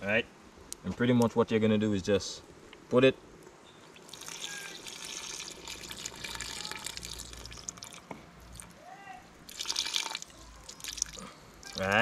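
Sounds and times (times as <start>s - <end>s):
liquid pouring and splashing: 3.9s - 8.8s, 9.4s - 12.0s.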